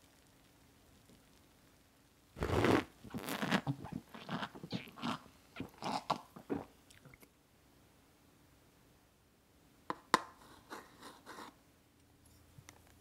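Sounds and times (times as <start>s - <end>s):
mouth sounds of eating: 2.4s - 7.3s.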